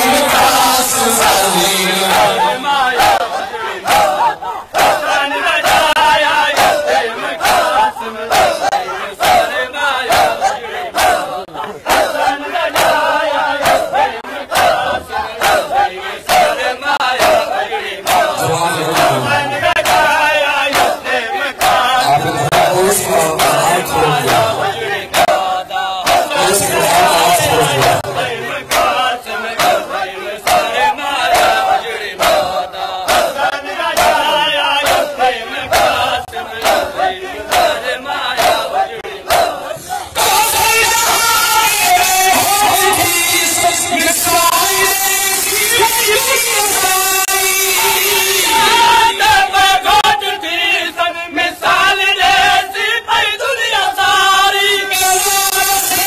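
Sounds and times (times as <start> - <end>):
men chanting in unison: 0.0 - 56.0
hands slapping chests: 20.7 - 21.0.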